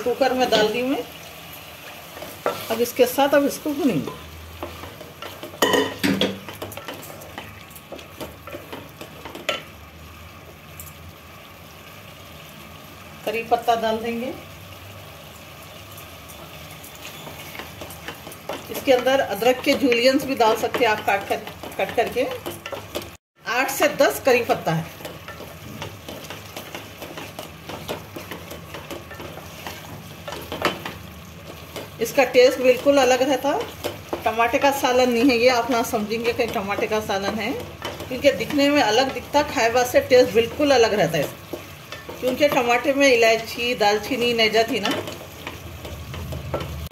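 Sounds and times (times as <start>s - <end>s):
soft sizzle of frying: 0.0s - 46.9s
wooden spatula scraping a pot: 16.9s - 23.2s, 24.8s - 33.0s
wooden spatula scraping metal pot: 24.8s - 42.8s.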